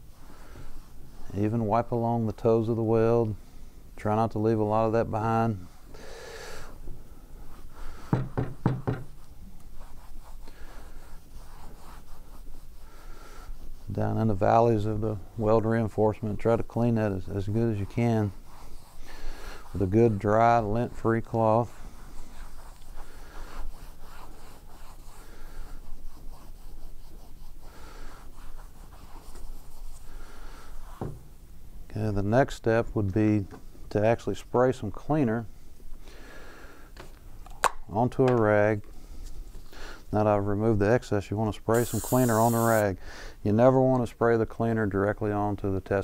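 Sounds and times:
cloth rag rubbing on metal: 0.1s - 3.2s, 9.0s - 31.1s, 41.7s - 43.0s.

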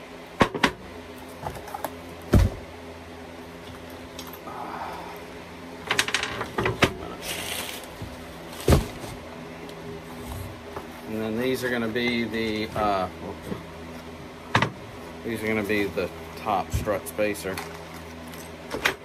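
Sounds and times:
metal parts knocking and clattering: 5.8s - 6.8s.

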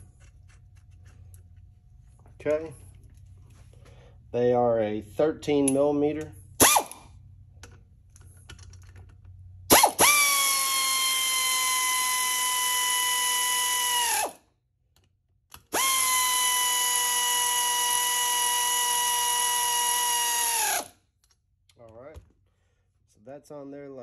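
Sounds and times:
electric ratchet motor whine: 9.7s - 14.4s, 15.7s - 21.0s.

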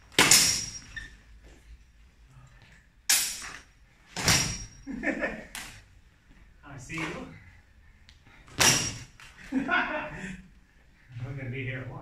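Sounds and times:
sword blades clashing: 0.1s - 1.0s, 3.1s - 4.9s, 8.6s - 9.2s.

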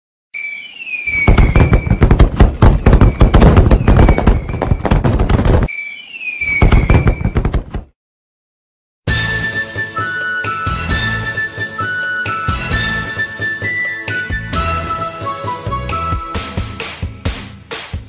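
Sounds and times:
firework whistle falling in pitch: 0.4s - 4.6s, 5.7s - 7.4s
fireworks crackling bangs: 1.1s - 5.7s, 6.5s - 7.8s.

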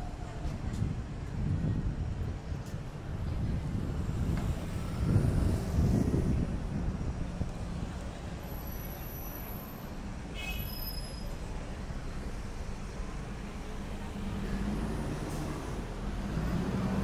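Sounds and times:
traffic rumble: 0.0s - 17.0s.

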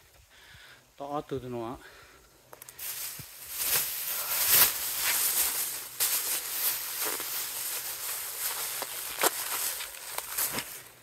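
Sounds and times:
footsteps crunching: 2.5s - 11.0s
rustling: 2.5s - 11.0s.

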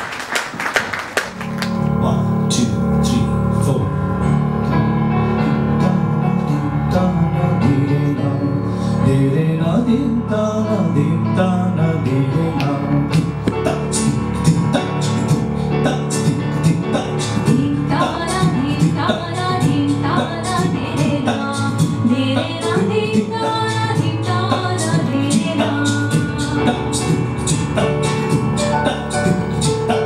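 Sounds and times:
keyboard sustained chords: 1.3s - 30.0s
man's vocal percussion: 11.8s - 18.1s, 25.4s - 30.0s
woman singing: 17.5s - 27.2s.

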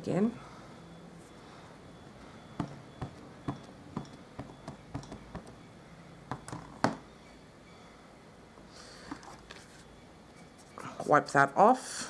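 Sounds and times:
ink pad tapping rubber stamp: 2.6s - 5.6s.

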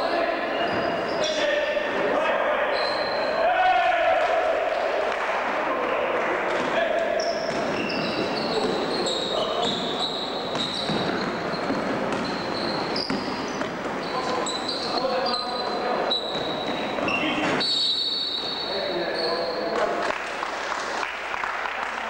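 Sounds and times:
sneakers squeaking on court: 0.0s - 1.8s, 2.7s - 3.4s, 6.5s - 20.0s
players' voices: 0.0s - 20.2s
basketball bouncing on floor: 7.4s - 8.9s, 10.5s - 13.9s.

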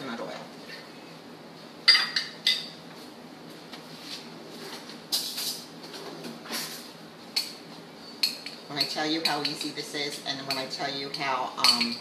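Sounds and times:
rustling and scraping: 2.9s - 7.0s
kitchen items clinking: 8.2s - 12.0s.

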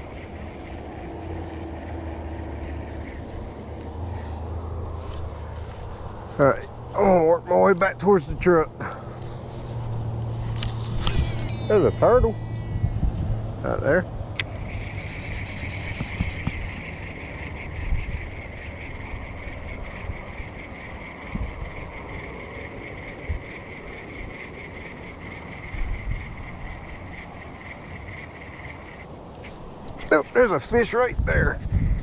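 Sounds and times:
chorus of small calling animals: 0.0s - 5.2s, 10.6s - 31.4s
low rumble: 8.6s - 17.0s.

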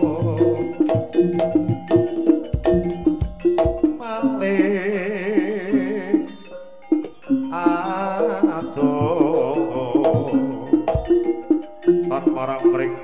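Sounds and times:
gamelan music: 0.0s - 13.0s
struck pot-gongs and metallophones: 0.0s - 13.0s
wavering lead melody: 0.0s - 13.0s.

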